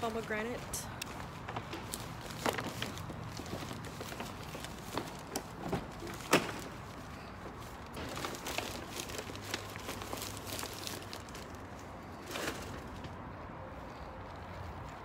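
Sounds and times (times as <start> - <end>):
shopping bag rustling: 1.8 - 12.9.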